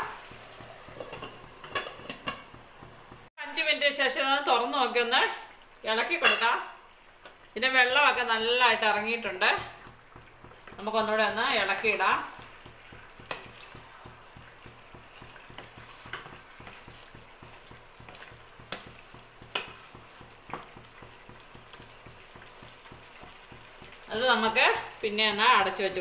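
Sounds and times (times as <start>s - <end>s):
chicken sizzling in pan: 0.0s - 3.3s, 4.8s - 26.0s
wooden spatula scraping pan: 0.1s - 2.9s, 9.4s - 22.4s.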